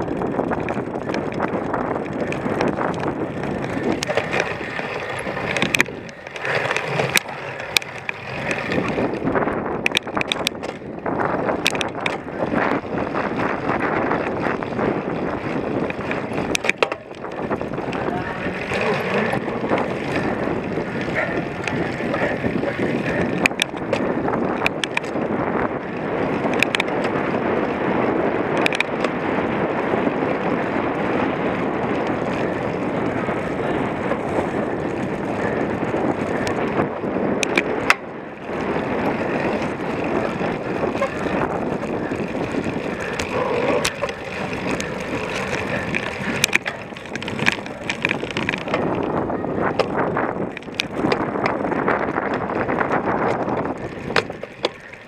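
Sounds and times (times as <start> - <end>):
bike tyres rumbling on rough ground: 0.0 - 55.0
sharp clicks and knocks: 3.9 - 10.8, 11.5 - 12.3, 15.8 - 18.0, 23.4 - 25.2, 26.5 - 27.2, 28.6 - 29.1, 37.4 - 38.1, 43.1 - 49.0.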